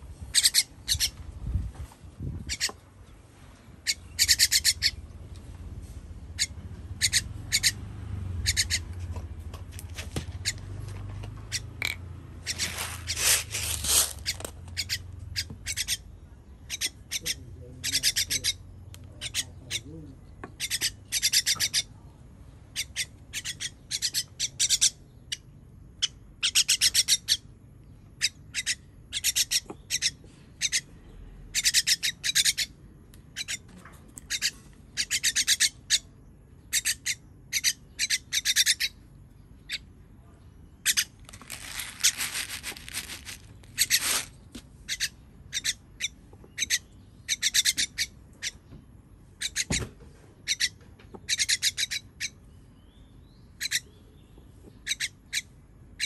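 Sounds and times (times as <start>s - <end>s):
bird giving harsh rasping calls: 0.3s - 1.2s, 2.4s - 2.8s, 3.8s - 5.0s, 6.3s - 9.0s, 10.4s - 10.7s, 11.4s - 22.0s, 22.7s - 27.5s, 28.2s - 32.8s, 33.4s - 33.7s, 34.3s - 39.9s, 40.7s - 48.7s, 49.3s - 49.8s, 50.4s - 52.5s, 53.6s - 54.0s, 54.7s - 56.0s.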